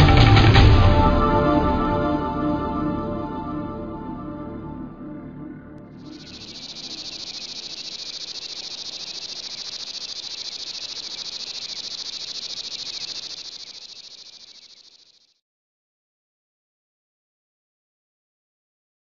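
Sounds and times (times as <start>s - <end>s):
insects trilling: 6.0s - 15.3s.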